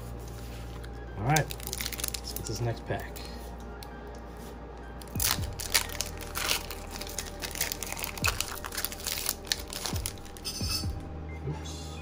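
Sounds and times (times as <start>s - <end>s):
foil wrapper crinkling: 0.7s - 3.3s, 5.0s - 10.6s.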